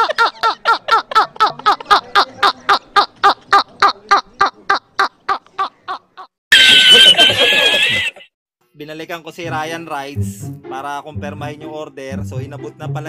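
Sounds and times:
man laughing hysterically: 0.0s - 2.6s, 5.6s - 8.3s.

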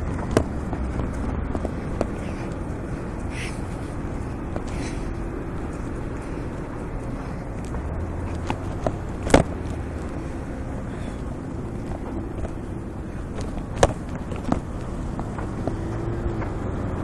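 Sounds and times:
city street traffic: 0.0s - 17.0s
sharp knocks: 7.7s - 9.7s, 13.3s - 16.6s.

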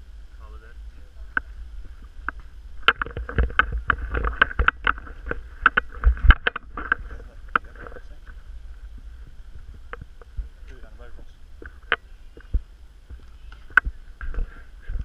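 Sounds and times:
wind rumble on microphone: 0.0s - 15.0s
sharp clicks and knocks: 2.2s - 8.0s.

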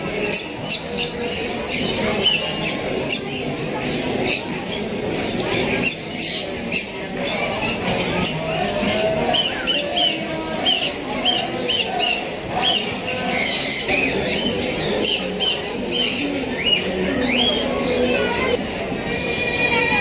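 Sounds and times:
birds chirping and squawking: 0.0s - 20.0s
low background murmur: 0.0s - 20.0s.

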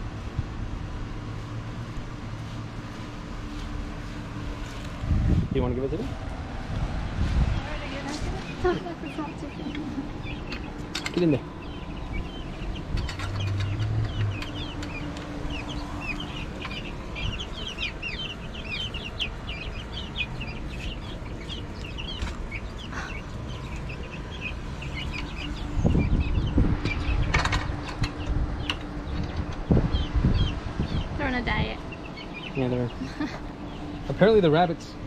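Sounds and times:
low rumble: 3.8s - 34.2s
chicks peeping: 7.2s - 34.4s.

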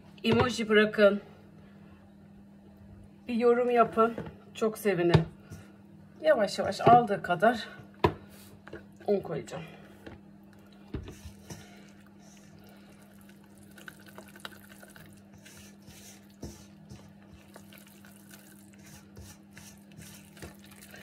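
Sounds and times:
dough squishing in a bowl: 6.6s - 21.0s.

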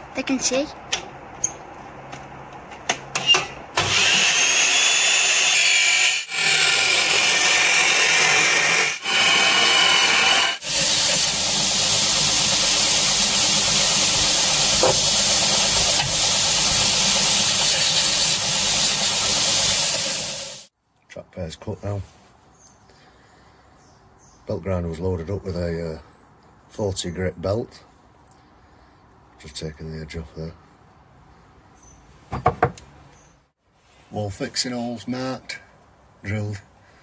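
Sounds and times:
chop saw cutting steel: 3.2s - 20.7s
belt grinder running: 3.8s - 20.7s.

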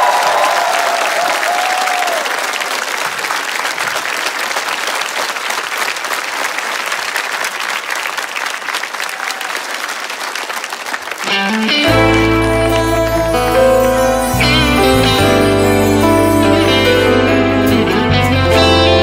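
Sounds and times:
audience applauding: 0.0s - 15.2s
low bass under chords: 11.8s - 19.0s.

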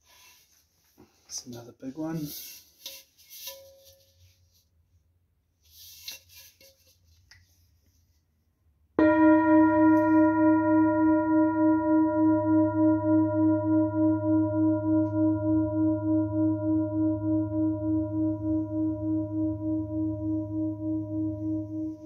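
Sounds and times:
singing bowl ringing: 9.0s - 22.0s.

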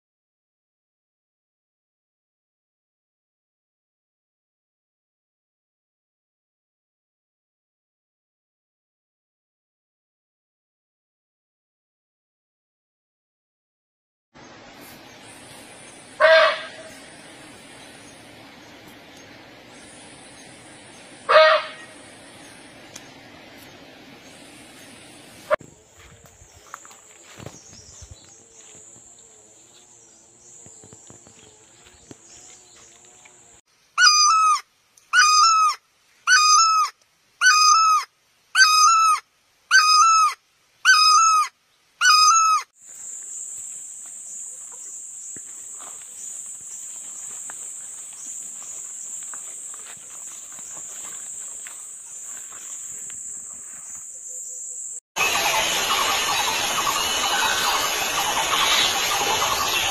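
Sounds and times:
hornbill calling: 15.3s - 23.2s, 34.0s - 42.7s, 54.2s - 59.9s
high-pitched drone: 55.2s - 59.9s.

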